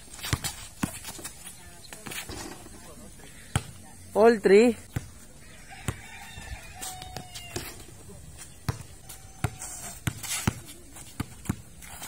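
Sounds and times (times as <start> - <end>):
basketball bouncing on concrete: 0.1 - 2.8, 3.5 - 3.8, 4.8 - 8.0, 8.6 - 12.0.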